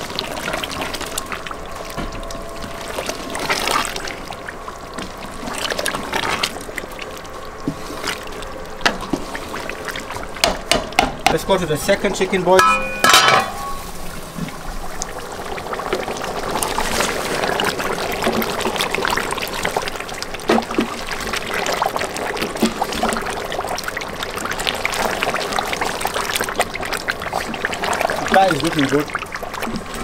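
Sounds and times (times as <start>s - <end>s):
curry bubbling and spluttering: 0.0s - 12.6s, 13.6s - 30.0s.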